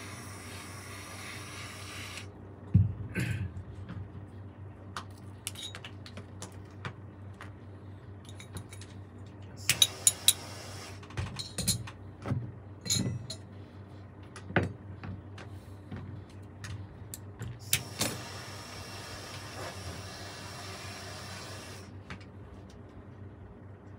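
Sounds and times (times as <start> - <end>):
steady low hum: 0.0 - 23.9
metal tools clinking on workbench: 5.5 - 5.9, 12.9 - 13.4.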